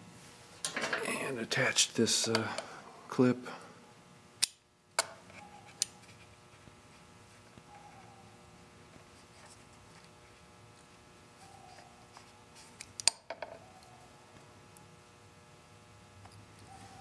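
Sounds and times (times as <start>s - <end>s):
spring clip snap: 4.4s - 5.1s.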